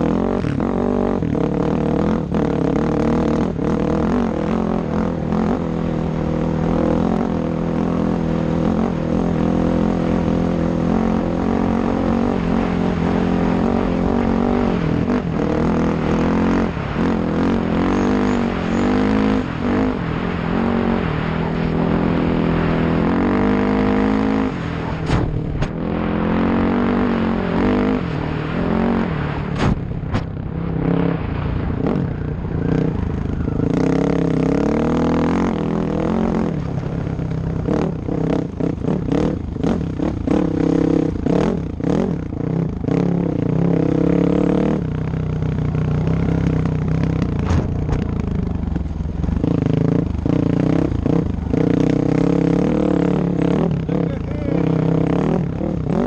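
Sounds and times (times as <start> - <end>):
off-road motorcycle engine revving: 0.0 - 56.0
knocks and clatter: 47.3 - 48.3.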